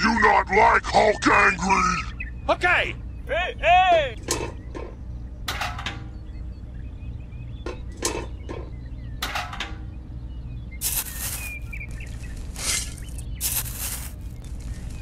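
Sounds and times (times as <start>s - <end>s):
steady low hum: 0.0s - 15.0s
sand and gravel scraping: 10.8s - 15.0s.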